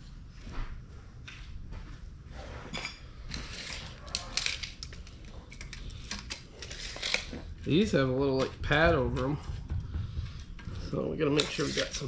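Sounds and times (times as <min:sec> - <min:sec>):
low steady hum: 0:00.0 - 0:12.0
clicks and scrapes of metal tools: 0:02.7 - 0:07.4, 0:11.4 - 0:12.0.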